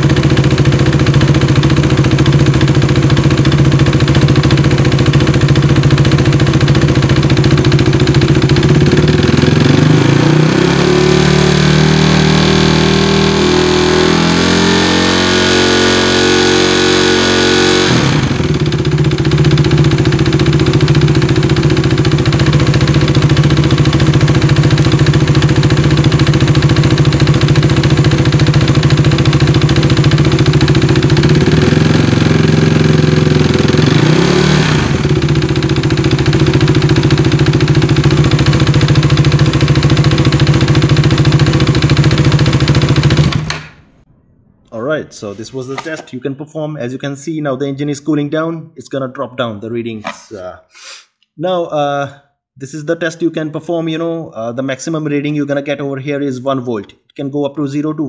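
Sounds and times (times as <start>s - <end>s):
motorcycle engine idling and revving: 0.0s - 44.6s.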